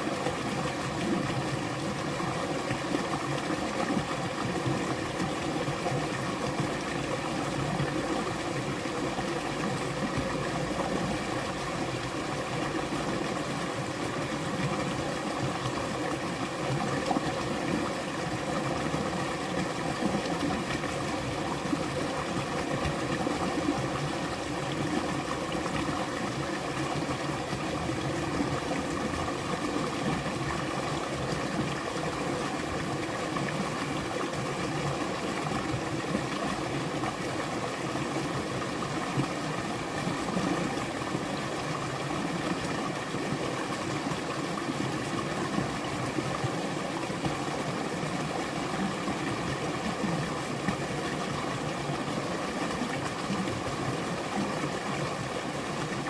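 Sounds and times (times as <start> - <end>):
stream running over rocks: 0.0 - 56.0.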